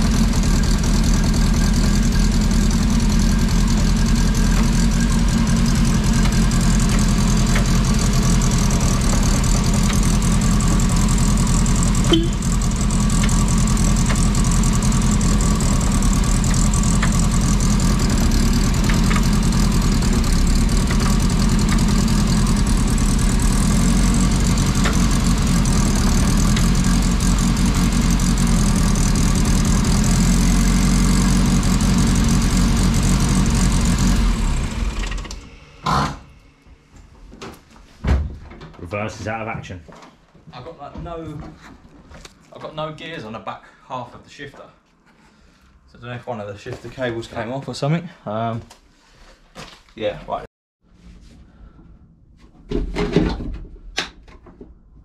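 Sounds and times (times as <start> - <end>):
car engine idling: 0.0 - 36.0.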